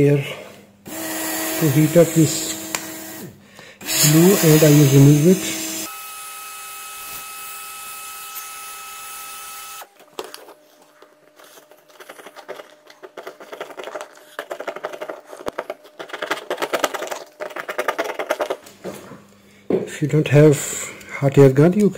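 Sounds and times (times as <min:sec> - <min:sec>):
screwdriver scraping plastic case: 0:10.1 - 0:18.6.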